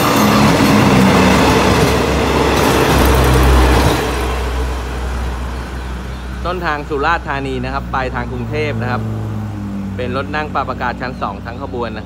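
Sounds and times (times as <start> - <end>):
train wheels rushing on rail: 0.0 - 6.4
deep diesel engine hum: 0.0 - 12.0.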